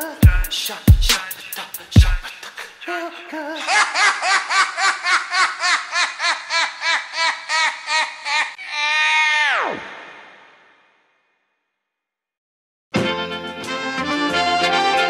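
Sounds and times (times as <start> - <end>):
rhythmic laughing vocal sample: 0.0 - 2.7, 3.4 - 8.9
background music: 13.0 - 15.0.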